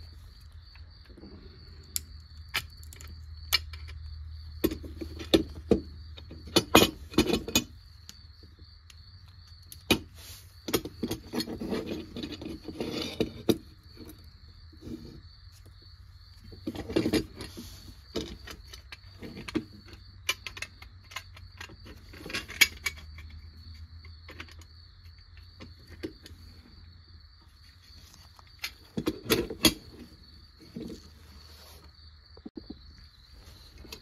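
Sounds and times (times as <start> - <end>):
metal toy parts clicking and tapping: 1.9 - 4.0, 16.8 - 26.4.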